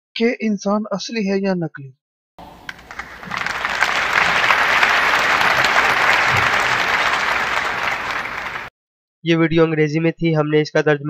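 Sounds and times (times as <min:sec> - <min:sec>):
audience applause: 0:02.4 - 0:08.7.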